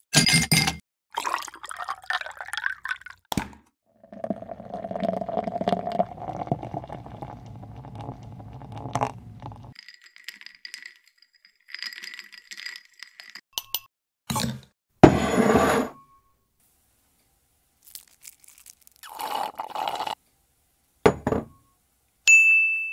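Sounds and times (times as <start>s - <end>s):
spoon clinking against glass and ice: 0.1s - 3.0s, 9.5s - 13.9s
liquid pouring into glass: 1.1s - 3.2s, 4.0s - 9.8s, 17.9s - 20.2s.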